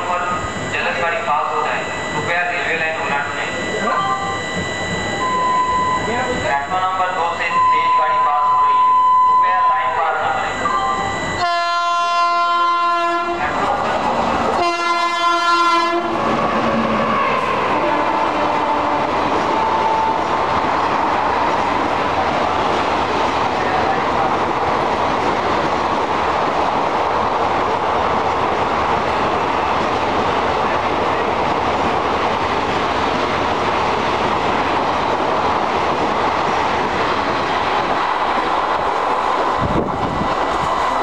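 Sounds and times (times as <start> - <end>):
train wheels rushing and rumbling: 10.0 - 41.0.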